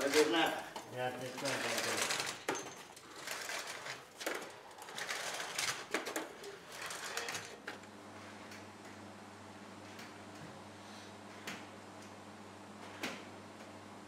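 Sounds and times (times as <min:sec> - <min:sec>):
walking frame scraping on stone: 0:00.0 - 0:07.6.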